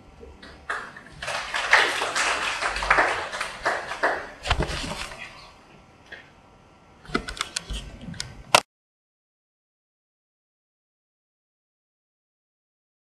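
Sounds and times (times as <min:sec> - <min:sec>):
audience applauding: 0:00.7 - 0:04.4.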